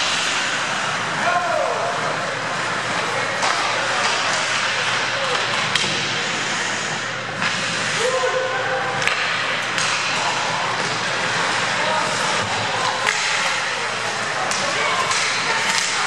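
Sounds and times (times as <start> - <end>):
hockey sticks and puck clacking: 0.0 - 8.2, 8.8 - 16.0
skate blades scraping ice: 0.0 - 8.3.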